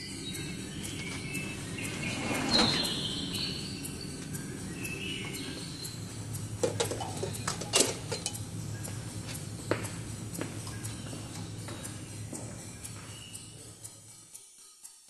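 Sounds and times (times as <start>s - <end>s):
steady low hum: 0.0s - 14.4s
footsteps on a hard floor: 1.0s - 2.0s, 8.8s - 13.8s.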